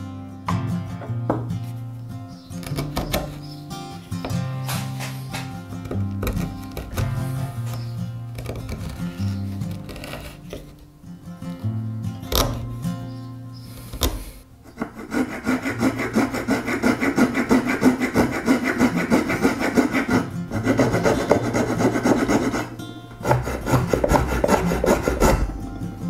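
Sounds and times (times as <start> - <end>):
hand saw cutting hard wood: 4.6 - 10.7, 13.9 - 25.6.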